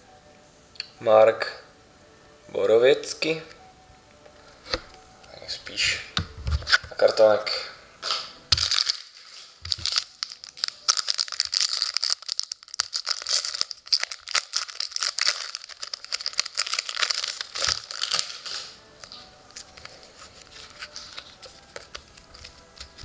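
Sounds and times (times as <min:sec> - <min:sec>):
handling cards: 0:04.3 - 0:07.2, 0:08.0 - 0:23.0
foil wrapper crinkling and tearing: 0:08.5 - 0:23.0.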